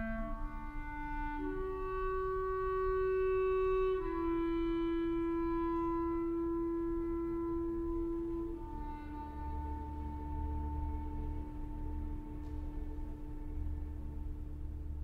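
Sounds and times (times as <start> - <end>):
slow melody of held notes: 0.0 - 15.0.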